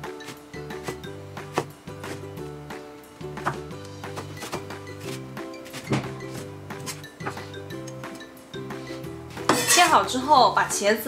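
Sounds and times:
background music: 0:00.0 - 0:11.0
cleaver chopping on cutting board: 0:00.2 - 0:02.3.

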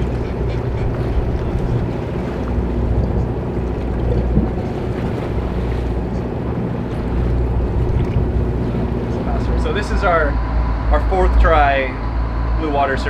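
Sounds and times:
boat engine running: 0:00.0 - 0:13.0
sea washing around hull: 0:00.0 - 0:13.0
wind buffeting microphone: 0:00.0 - 0:13.0.

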